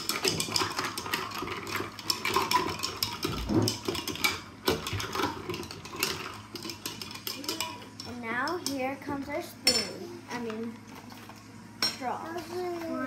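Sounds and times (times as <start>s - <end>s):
spoons clinking ice in glasses: 0.0s - 8.8s.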